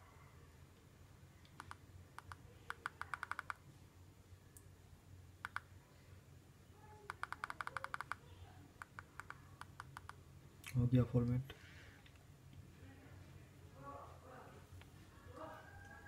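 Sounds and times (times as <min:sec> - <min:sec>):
phone keypad buttons clicking: 0:01.6 - 0:03.6, 0:05.4 - 0:05.7, 0:07.1 - 0:08.2.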